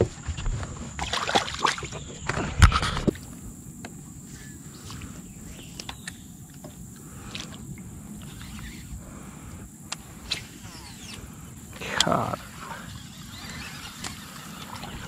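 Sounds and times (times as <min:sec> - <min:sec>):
faint ticks: 0:04.8 - 0:12.8.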